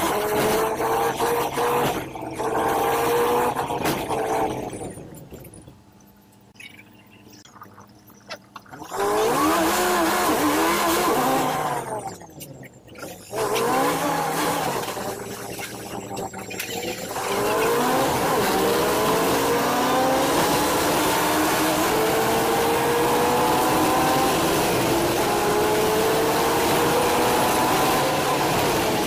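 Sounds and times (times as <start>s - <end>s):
bus engine and drivetrain whine: 8.9s - 29.0s.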